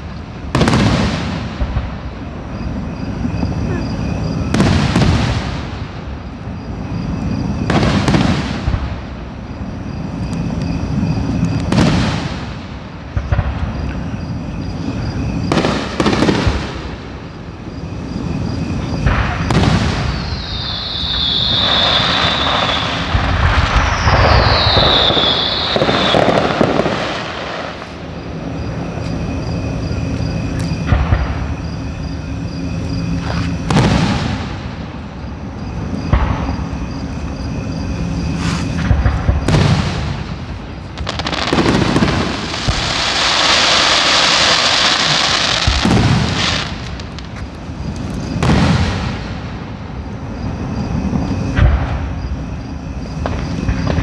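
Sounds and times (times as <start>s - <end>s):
firework shells booming: 0.0s - 2.2s, 3.2s - 6.1s, 7.3s - 9.2s, 15.1s - 17.3s, 18.2s - 28.7s, 33.6s - 35.0s, 38.8s - 47.4s, 48.3s - 49.7s
firework crackling: 0.0s - 13.9s, 14.6s - 31.5s, 33.1s - 35.2s, 38.2s - 49.9s
falling firework whistles: 0.0s - 54.0s.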